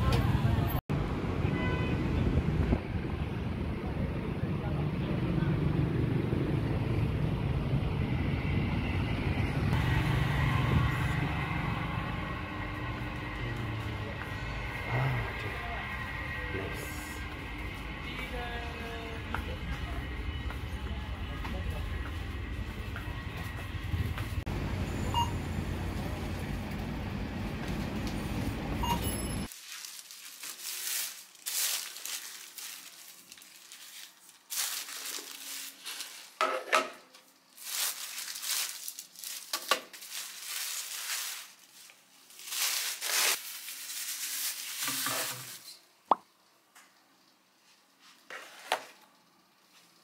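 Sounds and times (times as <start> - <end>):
supermarket background din: 1.4 - 46.0
plastic bags rustling: 29.5 - 36.4, 37.2 - 45.8.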